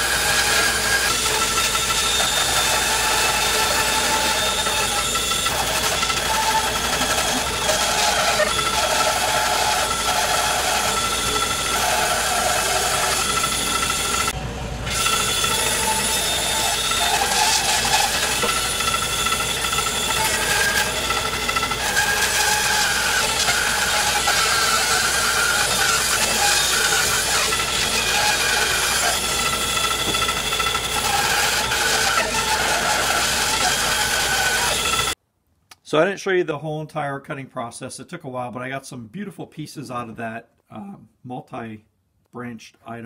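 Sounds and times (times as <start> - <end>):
bandsaw cutting log: 0.0 - 35.2
dust collector running: 0.0 - 35.2.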